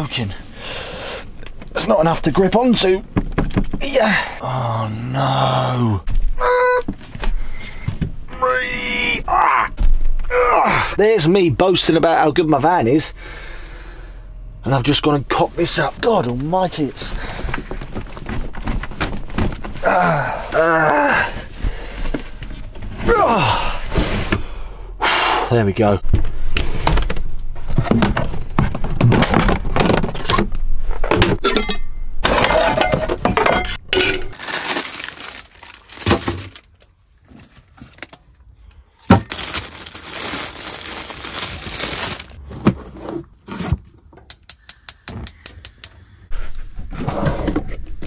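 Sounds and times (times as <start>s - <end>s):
kitchen items clattering: 31.1s - 36.6s.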